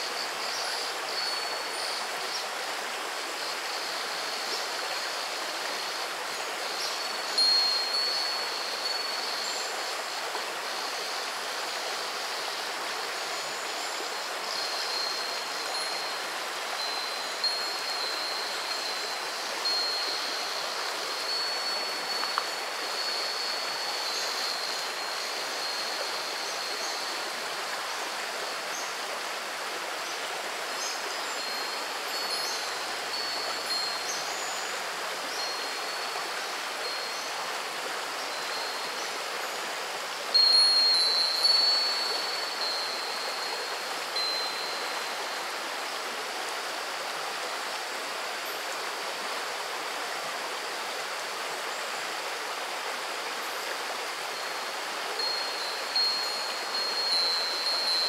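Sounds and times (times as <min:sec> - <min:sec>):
river babbling over stones: 0:00.0 - 0:58.0
wind chime ringing: 0:04.9 - 0:10.2, 0:14.5 - 0:27.2, 0:30.8 - 0:36.2, 0:36.8 - 0:37.3, 0:38.2 - 0:39.6, 0:40.3 - 0:45.4, 0:54.4 - 0:58.0.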